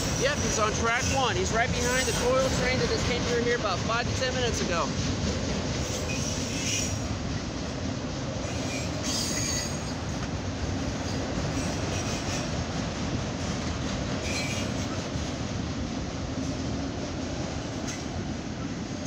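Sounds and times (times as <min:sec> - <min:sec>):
steel wheels rumbling on rail: 0:00.0 - 0:19.0
high wheel squeals: 0:05.8 - 0:07.1, 0:08.4 - 0:10.0, 0:14.2 - 0:15.0.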